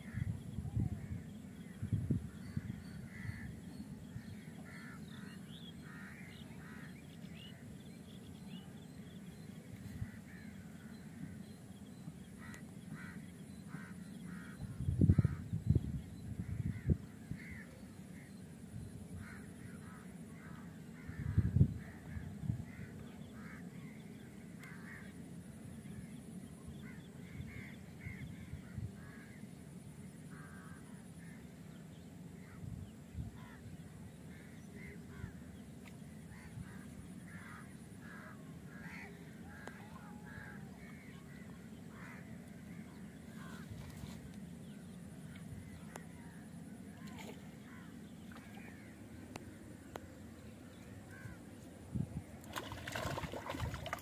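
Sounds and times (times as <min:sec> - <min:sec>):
low outdoor rumble: 0:00.0 - 0:54.0
crow-like bird calls: 0:02.3 - 0:07.0, 0:12.4 - 0:15.6, 0:16.4 - 0:18.4, 0:19.2 - 0:24.0, 0:24.6 - 0:25.1, 0:26.8 - 0:29.4, 0:30.3 - 0:31.5, 0:33.4 - 0:33.7, 0:34.3 - 0:35.4, 0:36.3 - 0:44.2, 0:47.0 - 0:49.1, 0:51.1 - 0:51.4.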